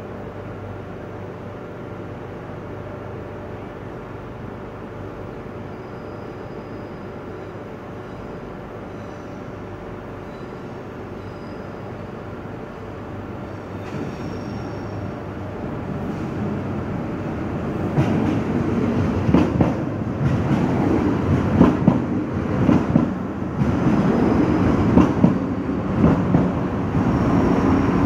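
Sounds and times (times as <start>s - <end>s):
train rumbling into station: 0.0s - 28.0s
high wheel squeals: 5.8s - 8.3s, 10.2s - 11.8s, 13.8s - 15.1s.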